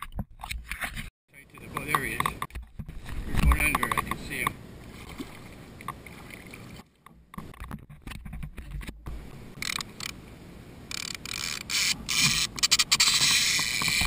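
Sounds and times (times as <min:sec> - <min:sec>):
fishing reel drag buzzing: 0:10.9 - 0:14.0.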